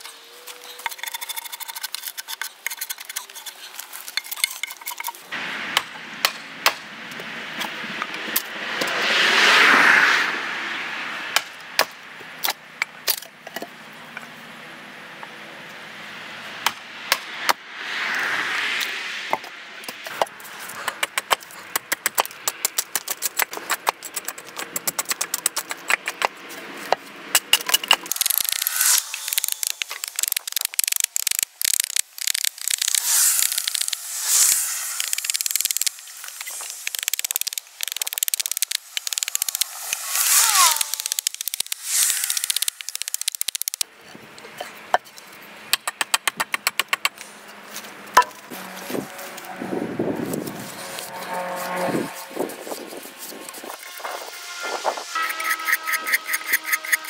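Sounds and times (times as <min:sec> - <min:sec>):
wood splitting with crackling rip: 0:27.4 - 0:34.0.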